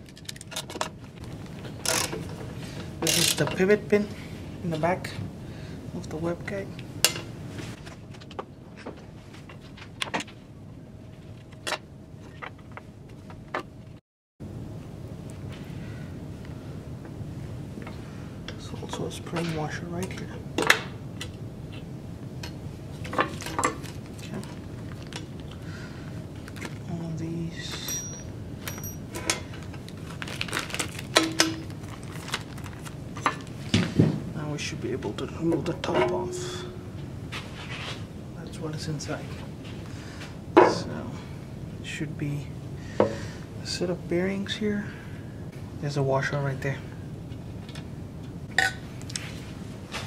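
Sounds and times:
low steady background hum: 0:00.0 - 0:50.0
plastic bag rustling: 0:23.8 - 0:25.5, 0:29.5 - 0:33.8.

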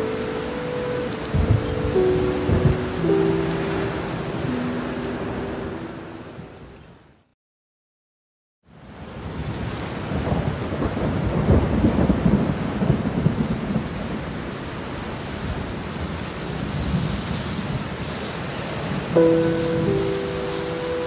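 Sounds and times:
held music chord: 0:00.0 - 0:06.6, 0:19.2 - 0:21.0
steady rain: 0:00.0 - 0:07.3, 0:08.7 - 0:21.0
thunder rumbling: 0:01.2 - 0:04.8, 0:09.3 - 0:14.3.

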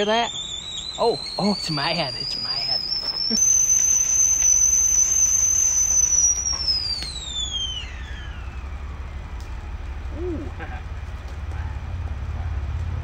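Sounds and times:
kettle whistling shrilly: 0:00.0 - 0:09.2
water boiling: 0:00.0 - 0:13.0.

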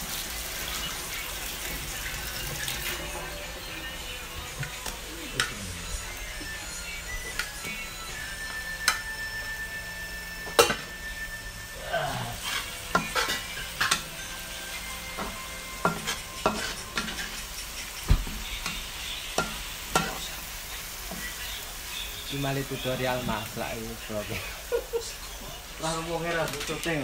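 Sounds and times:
paste sizzling in oil: 0:00.0 - 0:27.0
spatula scraping a wok: 0:05.3 - 0:22.8.

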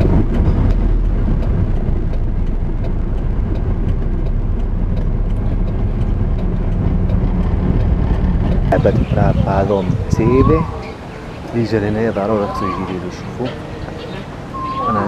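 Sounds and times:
vehicle engine and road noise: 0:00.0 - 0:15.0.

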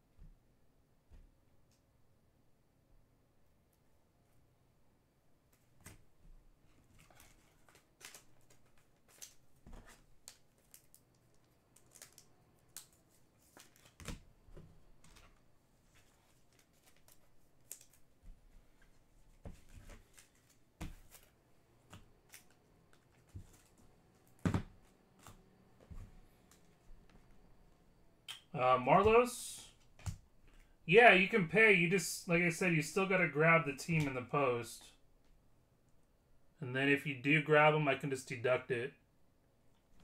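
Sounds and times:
cards clicking and rustling: 0:06.9 - 0:14.3, 0:15.0 - 0:26.8.

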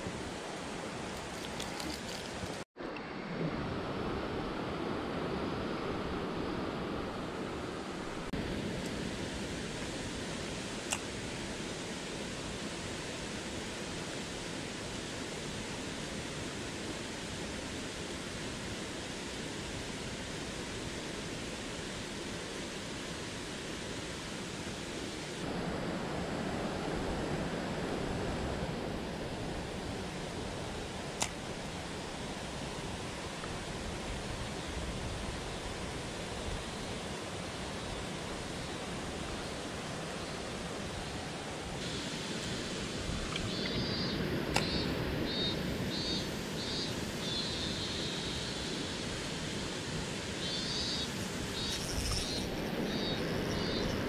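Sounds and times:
stream water rushing: 0:00.0 - 0:54.0.

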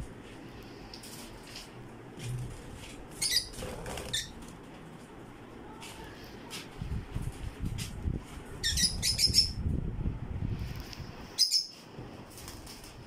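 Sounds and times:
lovebirds chirping shrilly: 0:03.2 - 0:04.4, 0:08.6 - 0:09.6, 0:11.3 - 0:11.8.

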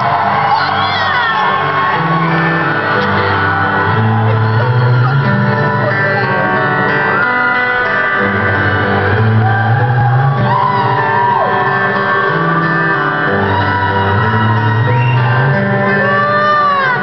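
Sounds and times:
crowd shouting: 0:00.0 - 0:17.0
electric guitar: 0:00.0 - 0:17.0
live rock band: 0:00.0 - 0:17.0
person singing: 0:15.9 - 0:17.0.

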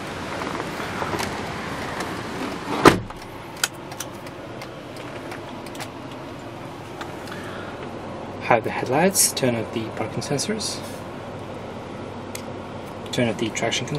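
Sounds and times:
steady background noise: 0:00.0 - 0:13.9
loud thump: 0:02.8 - 0:03.2.

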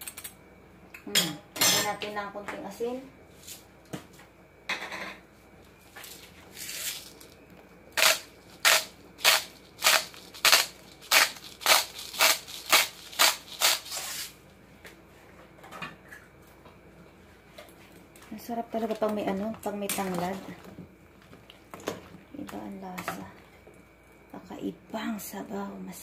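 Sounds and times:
salt shaker rattling: 0:08.0 - 0:14.3.

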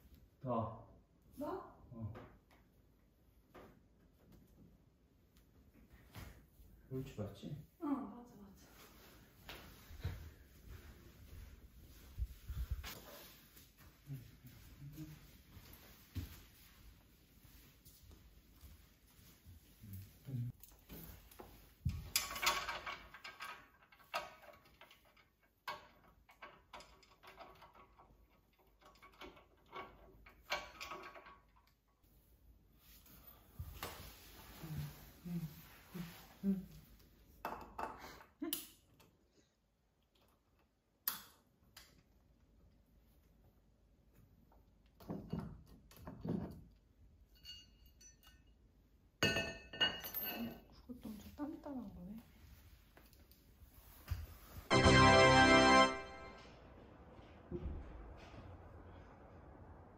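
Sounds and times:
metal clink on wooden floor: 0:21.9 - 0:28.2, 0:47.2 - 0:48.6, 0:49.2 - 0:50.8.

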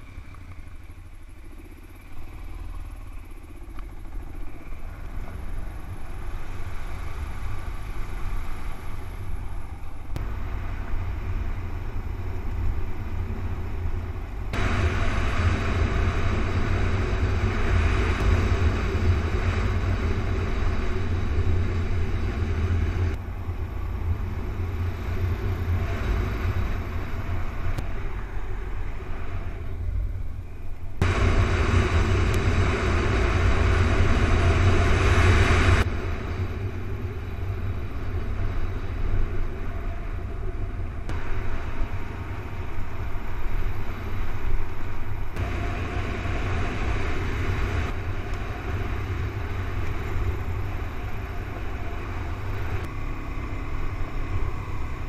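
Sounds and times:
motorcycle engine: 0:00.0 - 0:55.0
wind rumble on microphone: 0:00.0 - 0:55.0.

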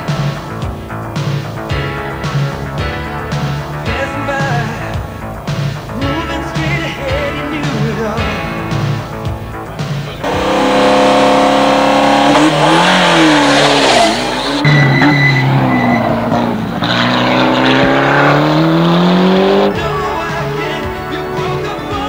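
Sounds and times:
music: 0:00.0 - 0:22.0
rally car engine revving: 0:09.8 - 0:21.7.

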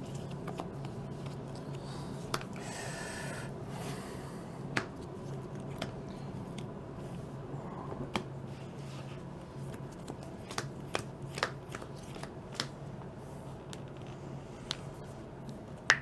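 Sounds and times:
steady low hum: 0:00.0 - 0:16.0
cards clicking and tapping: 0:00.1 - 0:01.4, 0:09.7 - 0:12.8.

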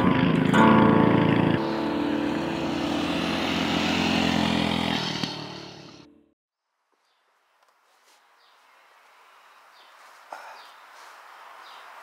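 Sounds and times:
small motorbike engines running: 0:00.0 - 0:06.1.

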